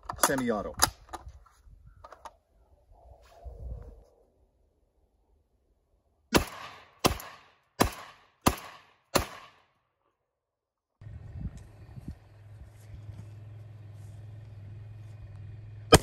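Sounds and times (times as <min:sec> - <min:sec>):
shotgun shots with echo: 0:06.3 - 0:09.7.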